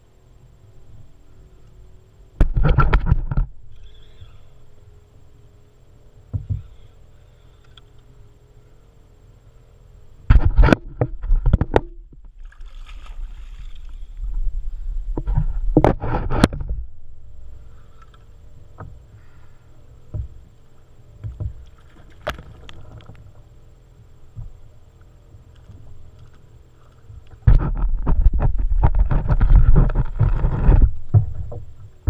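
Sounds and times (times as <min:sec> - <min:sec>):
small clicks: 0:06.5 - 0:08.2
low rumble: 0:09.9 - 0:32.0
water splashing against kayak: 0:10.3 - 0:16.8, 0:17.6 - 0:23.6, 0:24.3 - 0:32.0
hard knocks on kayak: 0:20.1 - 0:20.4.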